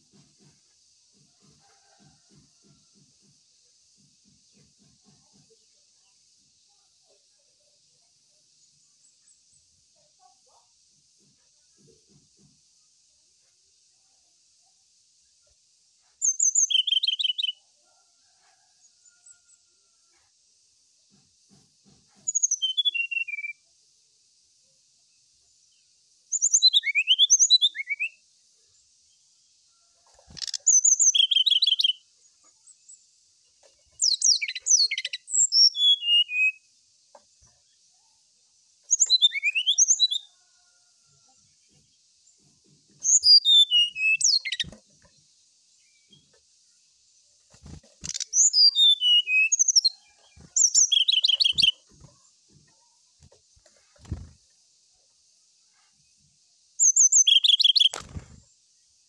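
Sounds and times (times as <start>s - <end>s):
bird singing whistled notes: 16.2s - 17.6s, 22.3s - 23.6s, 26.3s - 28.2s, 30.4s - 32.0s, 34.0s - 36.7s, 38.9s - 40.3s, 43.0s - 44.7s, 48.0s - 51.8s, 56.8s - 58.0s.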